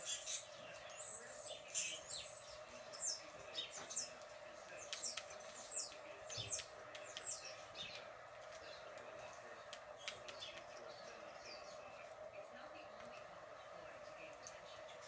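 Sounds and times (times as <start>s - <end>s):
songbird chirps through speaker: 0.0s - 8.9s
steady hum: 0.0s - 15.0s.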